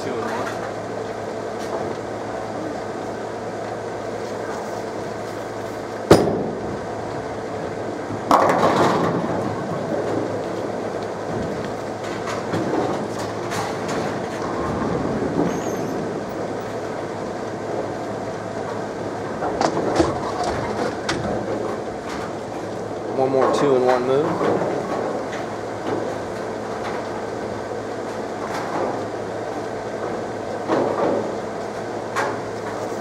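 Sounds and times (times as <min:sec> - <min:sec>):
bowling alley hum: 0:00.0 - 0:33.0
bowling ball rolling: 0:06.1 - 0:23.6
bowling pins crashing: 0:08.2 - 0:10.5, 0:19.2 - 0:22.4.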